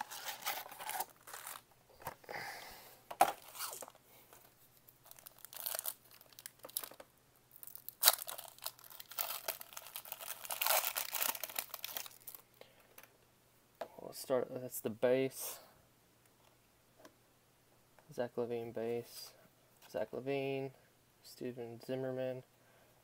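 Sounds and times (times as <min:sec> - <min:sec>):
foil wrapper crinkling and tearing: 0:00.0 - 0:01.6, 0:05.0 - 0:12.4.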